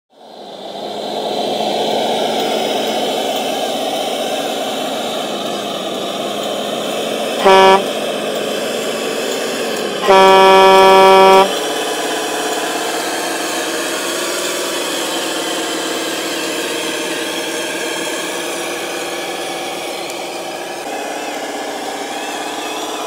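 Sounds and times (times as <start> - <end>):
simulated diesel engine running: 0.2 - 23.0
toy truck horn: 7.4 - 8.0, 10.0 - 11.8.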